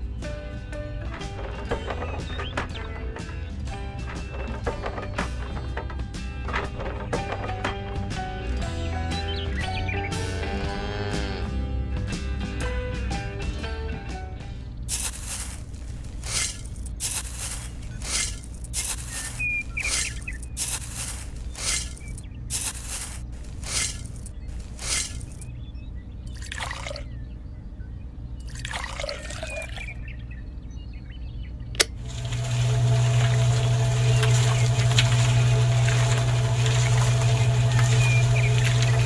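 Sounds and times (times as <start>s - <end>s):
sand pouring: 14.9s - 25.4s, 32.0s - 39.0s
gritty sand rustles: 14.9s - 25.5s
steady low hum: 29.9s - 39.0s.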